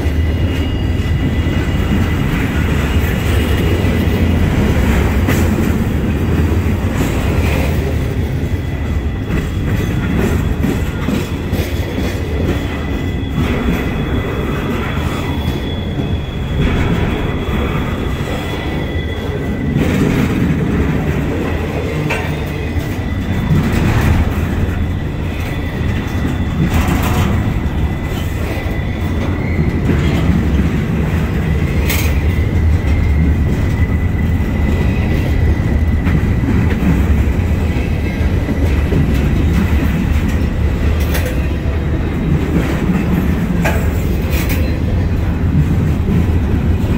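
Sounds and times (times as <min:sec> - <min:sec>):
train wheels rumbling on rail: 0:00.0 - 0:46.9
high wheel squeal: 0:11.8 - 0:20.4, 0:22.2 - 0:30.6.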